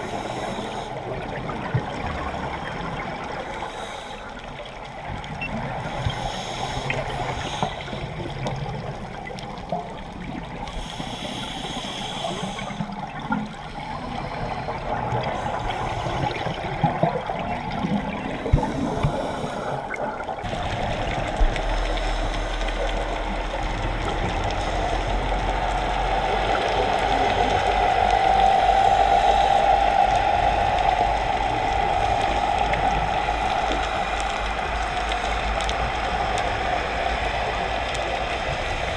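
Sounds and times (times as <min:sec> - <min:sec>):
diver regulator bubbling and hissing: 0:00.0 - 0:38.9
low underwater hum: 0:00.0 - 0:38.9.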